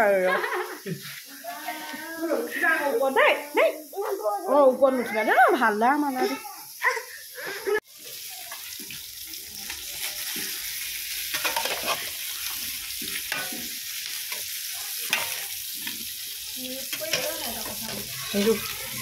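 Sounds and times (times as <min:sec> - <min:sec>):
sauce sizzling: 0:00.0 - 0:19.0
spatula scraping metal pot: 0:11.3 - 0:12.2.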